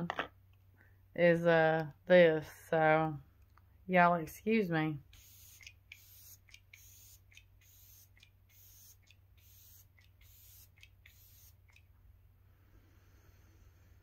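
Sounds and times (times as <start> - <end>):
spray bottle spritzes: 5.2 - 11.8.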